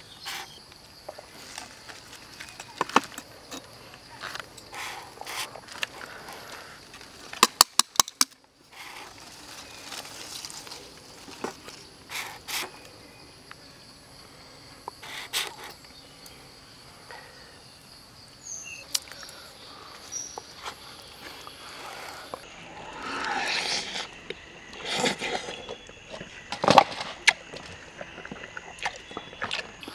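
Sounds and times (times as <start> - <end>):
high insect drone: 0.0 - 29.9
scrapes and rustles: 0.2 - 7.4, 8.7 - 12.7.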